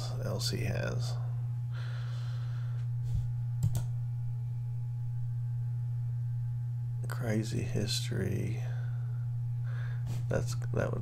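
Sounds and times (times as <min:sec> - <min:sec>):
low electrical hum: 0:00.0 - 0:11.0
computer mouse clicks: 0:03.6 - 0:03.9.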